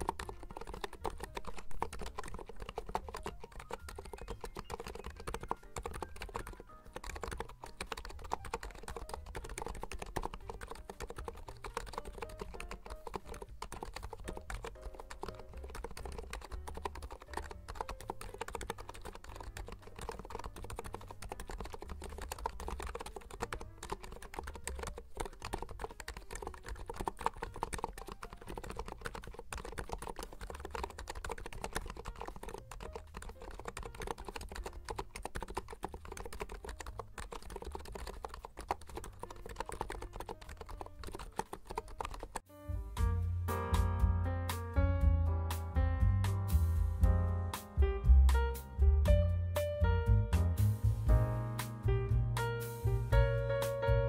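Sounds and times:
keyboard typing: 0.0s - 42.5s.

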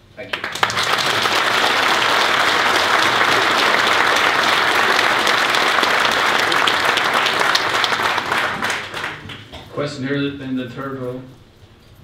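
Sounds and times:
audience applauding: 0.2s - 9.7s.

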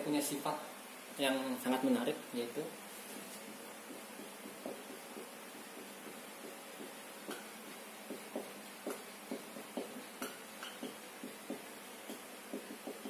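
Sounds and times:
marker writing on whiteboard: 3.0s - 13.0s.

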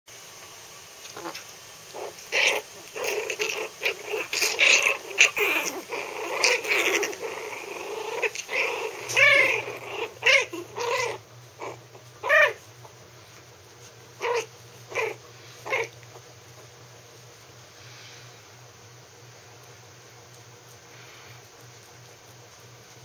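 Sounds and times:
puppies growling in play: 1.0s - 23.0s
puppy high-pitched howls: 2.0s - 12.6s, 14.2s - 15.9s.

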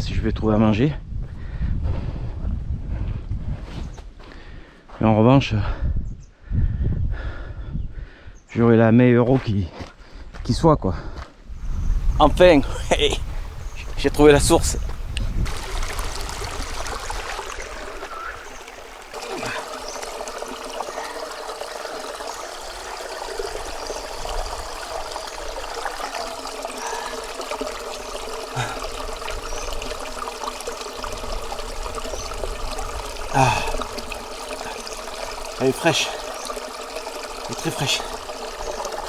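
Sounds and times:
spring water trickling over rock: 15.2s - 39.0s
water running into plastic bottle: 15.3s - 39.0s.

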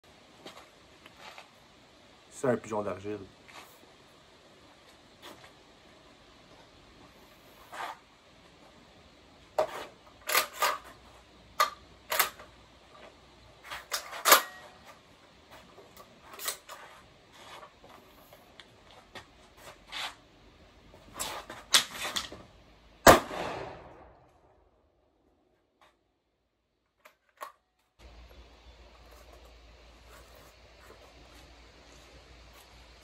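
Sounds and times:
shotgun metallic clicks: 11.6s - 12.5s.

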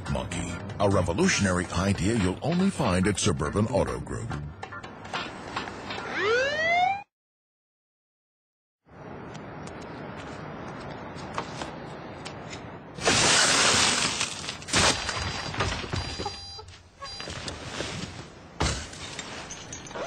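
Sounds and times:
car window glass smashing: 13.0s - 16.0s.

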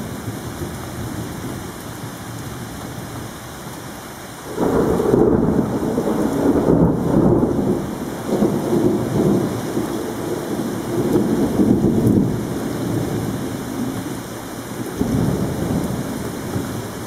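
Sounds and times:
steady rain: 0.0s - 17.0s
thunder rumbling: 4.5s - 14.2s, 14.8s - 17.0s.

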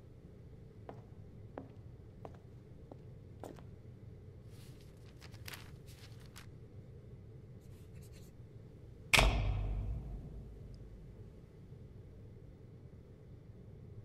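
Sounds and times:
loud deep boom: 9.2s - 11.4s.

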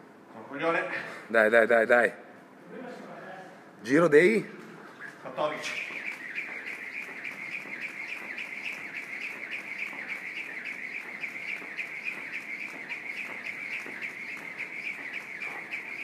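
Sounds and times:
jump rope whirring: 4.8s - 16.0s
rope ticking on rubber floor: 5.0s - 16.0s.

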